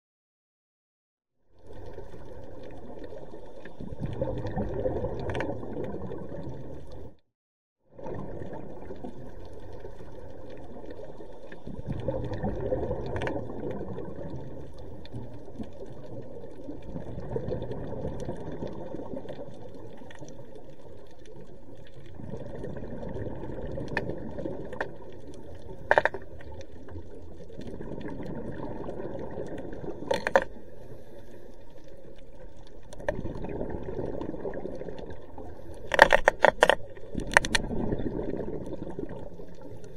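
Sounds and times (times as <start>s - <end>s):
muffled underwater crackle: 1.5s - 7.2s, 7.9s - 39.9s
diver's breathing bubbles: 11.7s - 15.4s, 22.1s - 25.1s, 37.0s - 39.9s.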